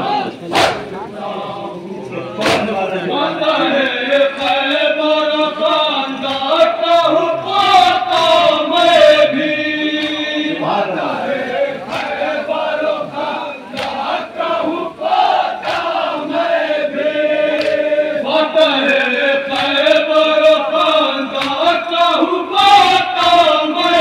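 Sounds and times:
men chanting together: 0:00.0 - 0:24.0
hand slaps on chest: 0:17.6 - 0:17.8.

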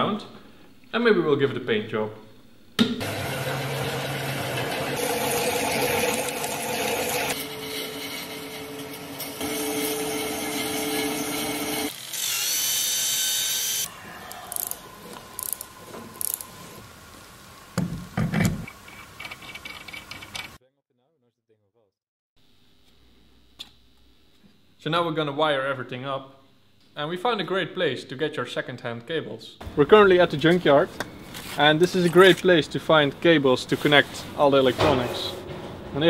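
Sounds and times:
metal parts clicking and knocking: 0:19.2 - 0:20.6.

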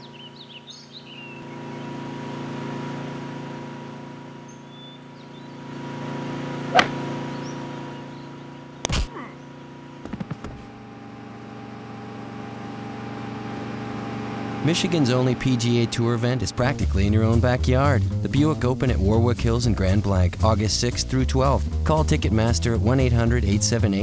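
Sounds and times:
riding lawn mower engine: 0:00.0 - 0:24.0
sharp crack: 0:06.7 - 0:07.1, 0:08.8 - 0:09.2
heavy thump: 0:06.8 - 0:07.0.

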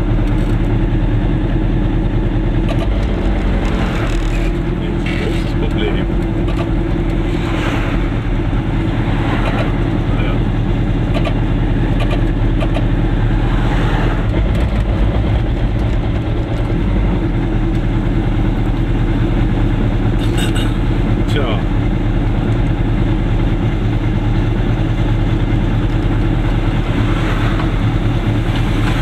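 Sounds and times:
small two-stroke car engine running: 0:14.3 - 0:29.0.

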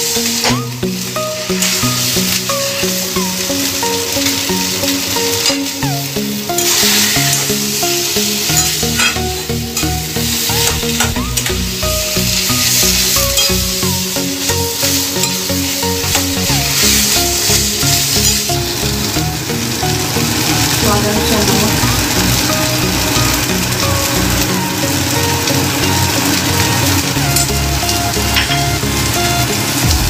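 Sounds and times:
background music with held notes: 0:00.0 - 0:30.0
food sizzling: 0:00.0 - 0:30.0
metal spatula scraping a pan: 0:06.5 - 0:11.6, 0:12.2 - 0:18.6.

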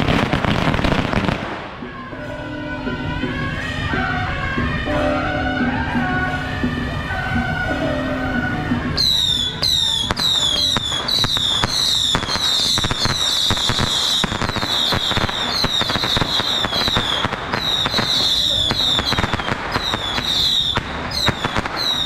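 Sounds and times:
firecrackers crackling: 0:00.0 - 0:22.0
music with held tones: 0:00.2 - 0:22.0
falling high whistles: 0:08.4 - 0:22.0.

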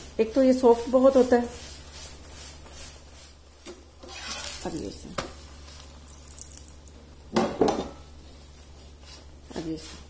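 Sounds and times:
bread sizzling in a pan: 0:00.7 - 0:07.3
metal spatula scraping a pan: 0:04.0 - 0:04.8.

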